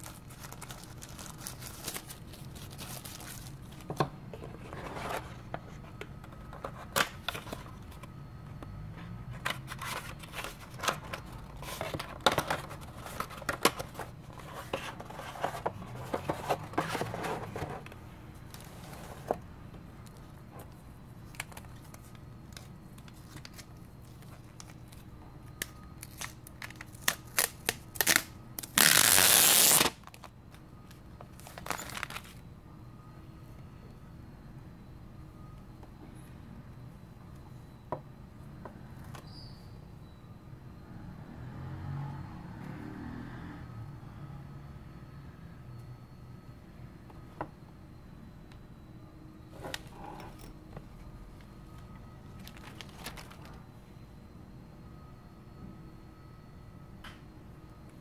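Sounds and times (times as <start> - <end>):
tissue paper and plastic crinkling: 0.0 - 3.9, 31.3 - 32.4, 52.4 - 53.6
steady low hum: 0.0 - 41.3, 43.7 - 58.0.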